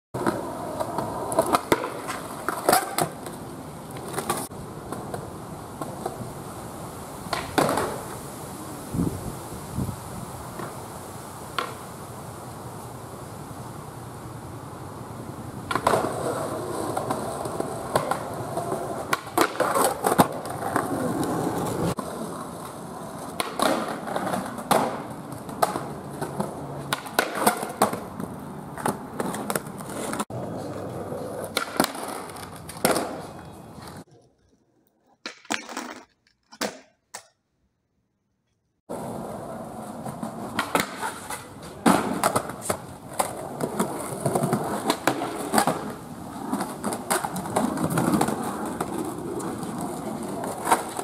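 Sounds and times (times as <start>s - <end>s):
skateboard clacking on pavement: 0.2s - 6.3s, 7.2s - 8.2s, 11.5s - 11.9s, 15.6s - 34.4s, 35.1s - 37.3s, 38.9s - 51.0s
skateboard wheels rolling on concrete: 0.2s - 51.0s.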